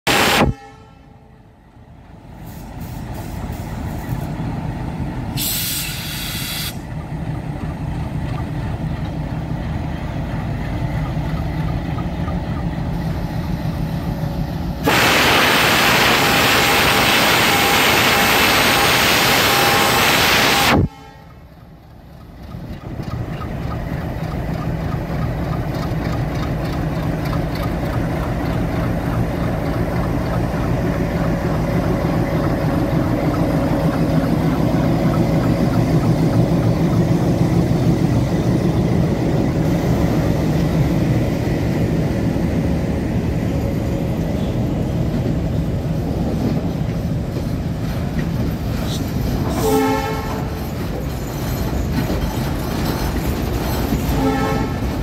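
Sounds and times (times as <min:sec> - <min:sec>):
diesel locomotive engine rumbling: 0:00.0 - 0:55.0
compressed air hiss: 0:02.4 - 0:04.4, 0:05.4 - 0:06.8.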